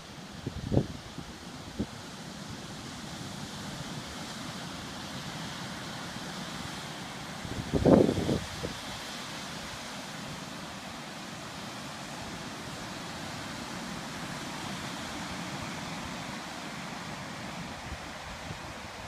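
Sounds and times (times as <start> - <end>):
wind on microphone: 0.4 - 1.9, 7.4 - 9.0
ocean surf breaking: 4.6 - 19.0.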